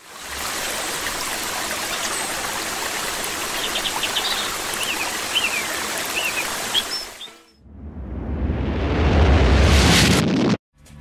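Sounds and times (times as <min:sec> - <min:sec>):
flowing water: 0:00.0 - 0:07.3.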